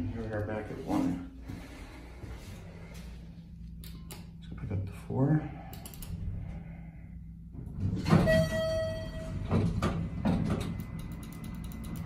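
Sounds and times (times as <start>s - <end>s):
elevator doors sliding: 7.6s - 12.0s.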